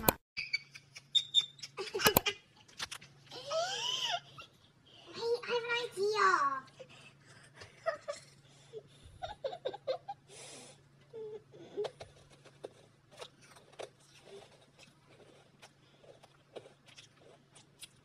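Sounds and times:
stifled giggling: 7.2s - 10.3s.

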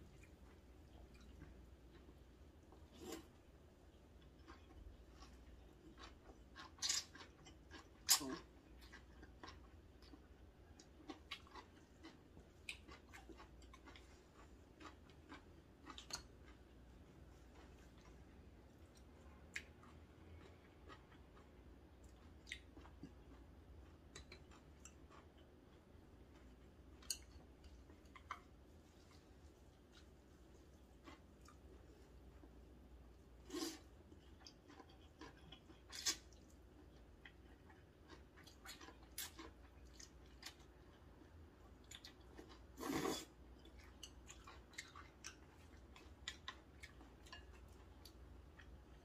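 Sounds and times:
quiet chewing: 0.0s - 49.0s
person slurping noodles: 42.8s - 43.3s.

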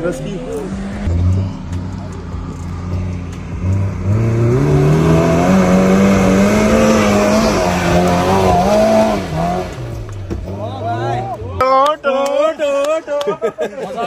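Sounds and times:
engine revving hard: 0.5s - 10.0s.

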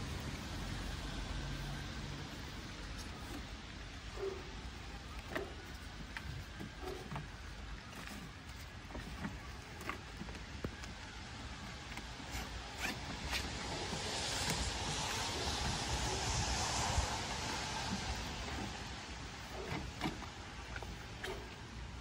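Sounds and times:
wind rumble on microphone: 12.6s - 21.0s.

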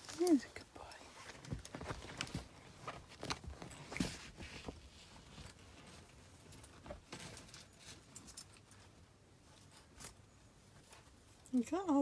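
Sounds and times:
rustling on fabric cushions: 0.0s - 12.0s.

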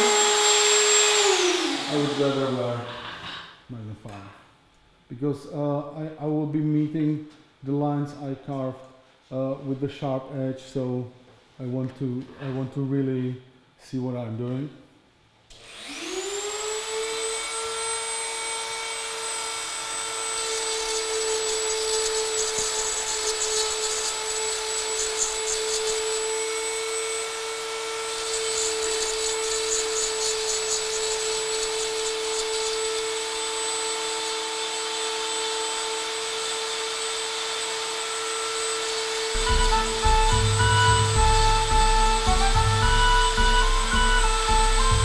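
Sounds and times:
rotary tool whine: 0.0s - 3.5s, 15.5s - 45.0s.

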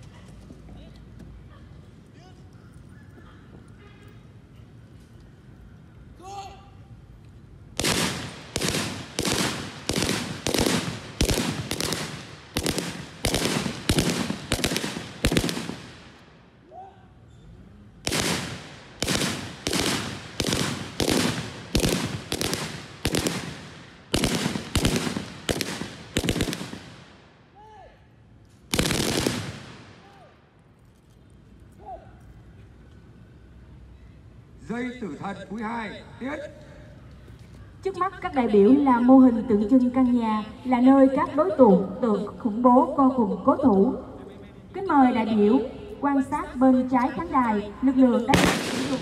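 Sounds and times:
rifle shots: 7.8s - 16.2s, 18.0s - 27.2s, 28.7s - 30.1s, 48.3s - 49.0s.

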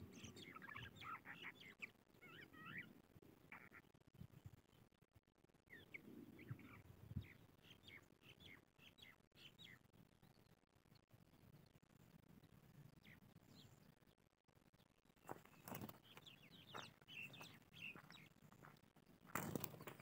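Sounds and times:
lark singing: 0.0s - 3.9s, 5.7s - 10.6s, 15.6s - 18.3s.

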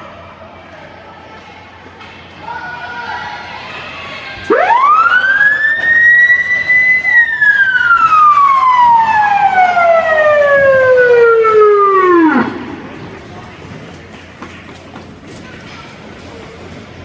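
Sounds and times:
arena siren wailing: 4.5s - 12.9s.

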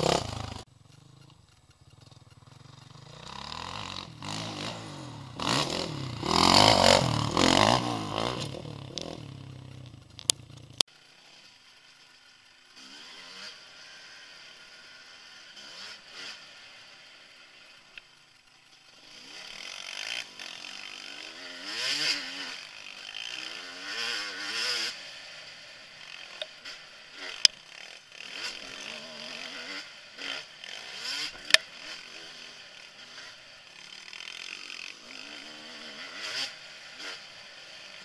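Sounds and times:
dirt bike engine revving: 0.0s - 38.0s
sharp clicks: 9.8s - 10.8s.

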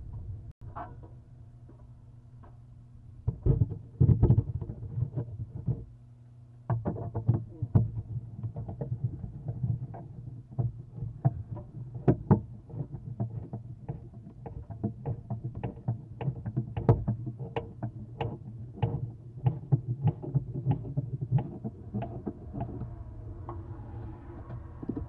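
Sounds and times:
low hum: 0.0s - 6.7s, 18.0s - 25.0s.

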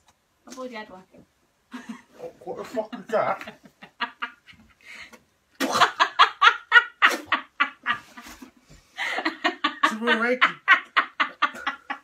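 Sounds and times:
person laughing hard: 9.0s - 12.0s.

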